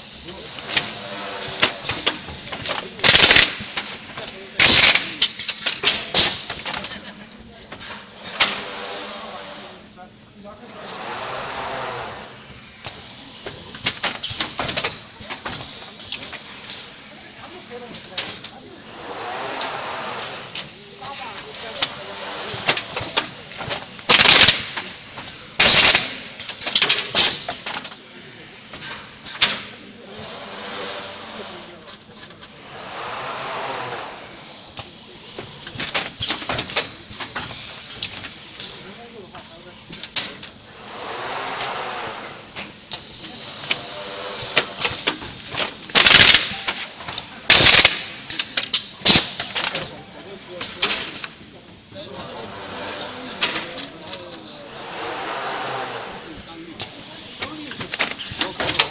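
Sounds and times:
motor-driven carriage whirring: 0.0 - 58.9
pneumatic clamps clacking and knocking: 0.0 - 58.9
machine rushing slide: 7.8 - 58.9
short high squeals: 32.6 - 34.5.

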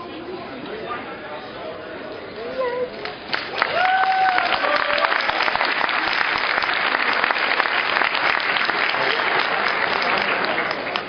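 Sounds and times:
crowd applauding: 3.0 - 11.0.

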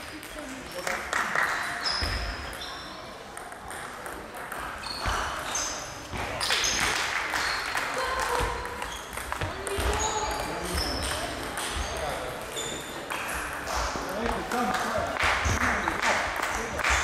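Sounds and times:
table tennis balls knocking: 3.3 - 5.5, 8.3 - 17.0.

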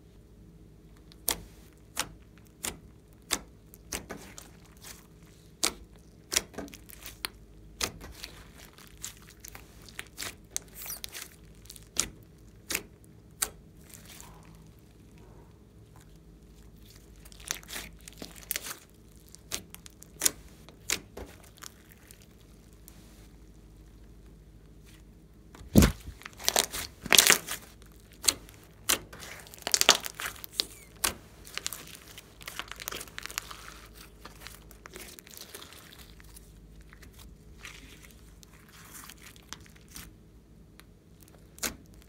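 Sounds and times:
slime clicking and popping: 25.6 - 36.2, 40.7 - 42.0.

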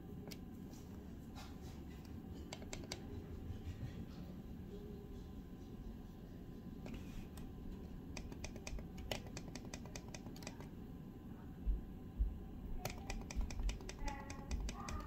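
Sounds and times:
dimmer buttons clicking: 2.5 - 3.1, 8.1 - 10.7, 12.8 - 15.0.

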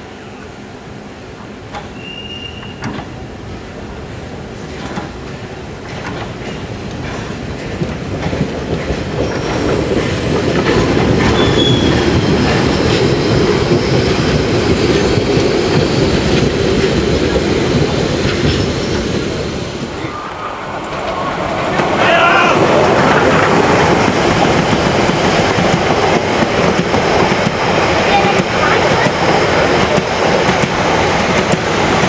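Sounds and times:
train coaches clattering over rails: 1.4 - 3.3, 4.6 - 20.1, 20.7 - 32.0
high wheel squeals: 11.3 - 14.3.

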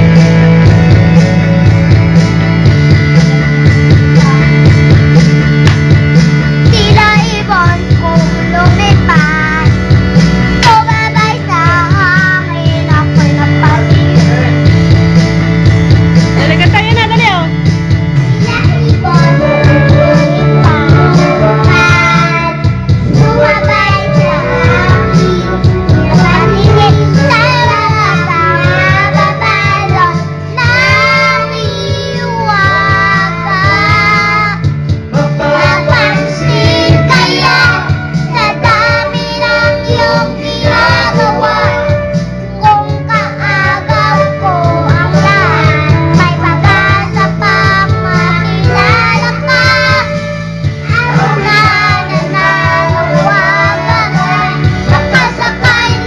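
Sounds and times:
backing music with guitar: 0.0 - 56.0
boy singing into microphone: 6.7 - 9.8, 10.6 - 14.7, 18.4 - 56.0.

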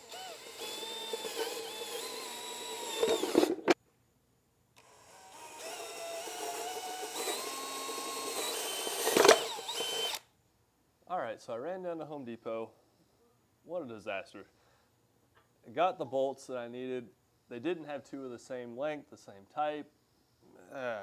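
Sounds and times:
cordless drill boring into wood: 0.0 - 3.8, 4.8 - 10.3.

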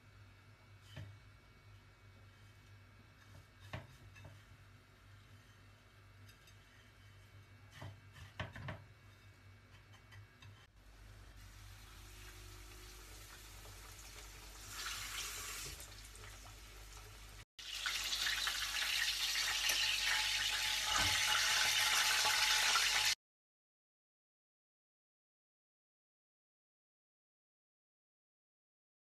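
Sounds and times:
schnitzel sizzling in oil: 11.0 - 23.2.

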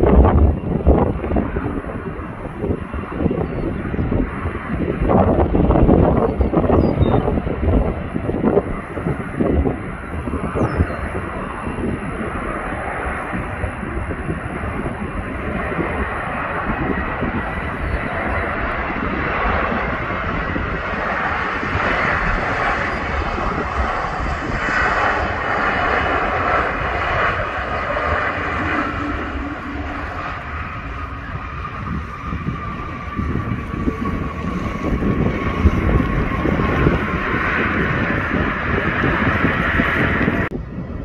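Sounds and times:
jet engines rushing with whine: 0.0 - 41.0.

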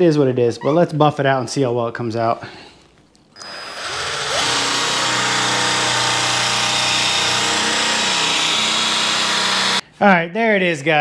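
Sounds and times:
electric polisher motor whine: 3.4 - 9.8.

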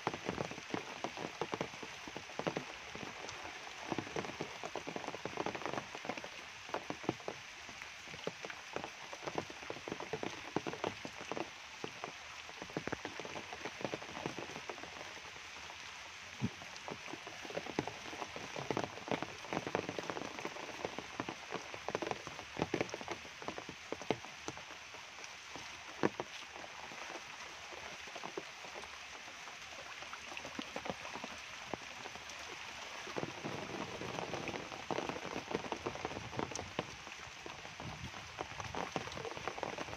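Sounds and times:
rain falling on leaves: 0.0 - 39.9.

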